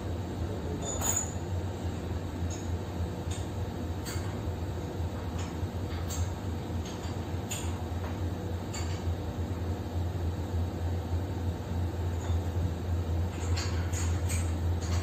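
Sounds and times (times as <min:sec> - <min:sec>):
low machinery hum: 0:00.0 - 0:15.0.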